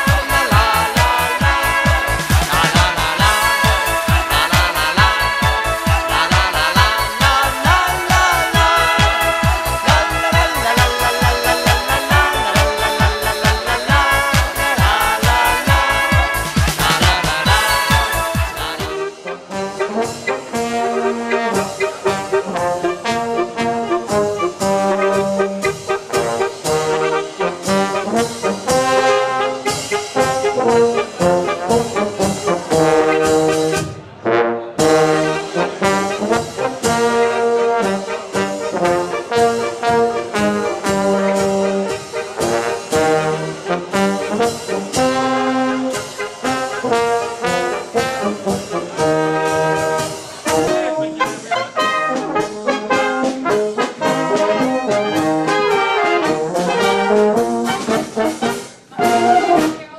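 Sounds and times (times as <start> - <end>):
bass drum beat: 0.0 - 19.0
brass band playing: 0.0 - 59.9.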